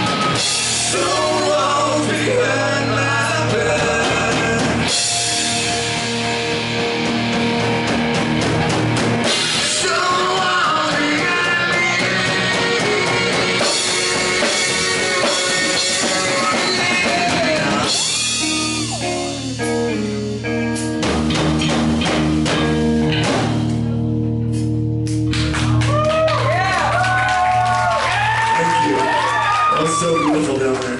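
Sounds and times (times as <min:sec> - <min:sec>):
drum kit: 0:00.0 - 0:30.9
electric guitars: 0:00.0 - 0:30.9
lead singer singing: 0:00.5 - 0:05.4, 0:09.5 - 0:19.4.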